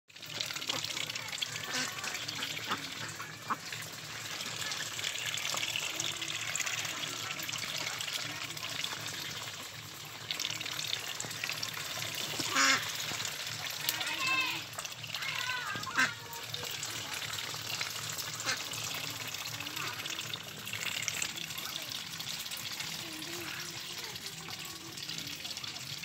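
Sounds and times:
ducks dabbling and splashing: 0.1 - 26.0
ducks quacking: 0.6 - 8.4, 12.1 - 13.2, 15.2 - 17.2, 17.8 - 20.3.

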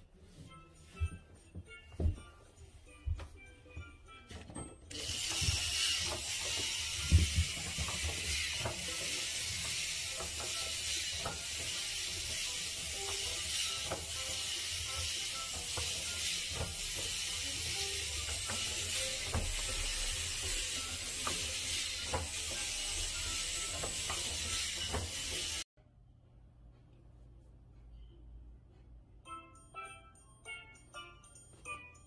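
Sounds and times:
plastic gears clicking: 4.9 - 25.6
small electric motor whirring: 4.9 - 25.6.

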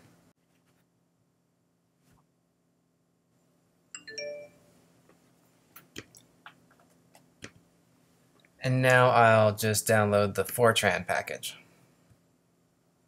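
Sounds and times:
completion chime ding: 4.0 - 4.7.

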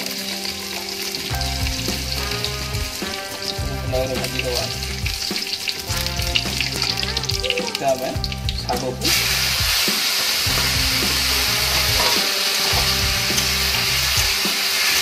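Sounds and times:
garlic and chillies sizzling in oil: 0.0 - 15.0
spatula stirring: 11.6 - 13.6.

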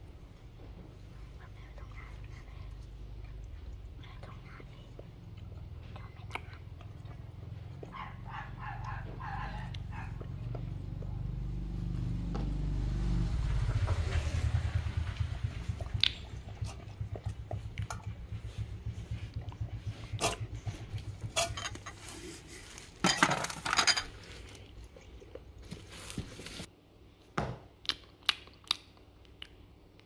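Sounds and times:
dog lapping and chewing: 15.5 - 21.9
china bowls clattering on tray: 23.0 - 24.2.

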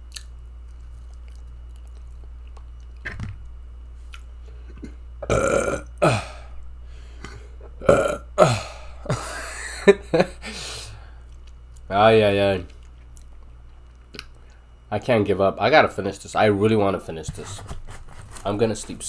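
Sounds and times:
man burping: 4.8 - 6.6, 7.8 - 9.4.

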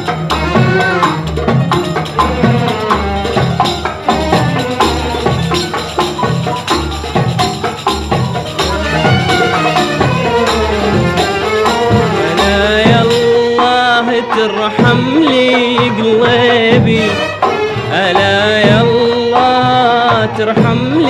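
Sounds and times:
violins playing melody: 0.0 - 7.2, 8.4 - 15.4, 16.8 - 18.4
steady percussion beat: 0.0 - 21.0.

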